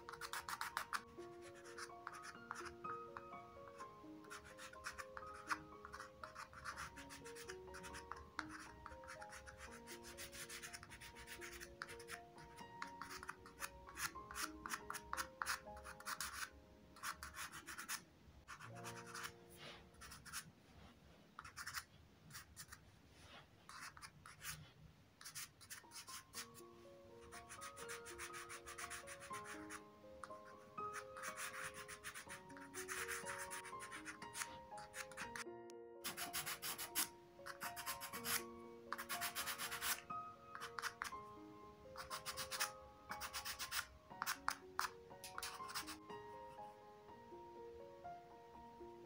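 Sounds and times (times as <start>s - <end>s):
quiet background music: 0.0s - 49.0s
pastel scraping on cardboard: 0.1s - 1.0s, 36.0s - 38.4s, 39.0s - 40.0s.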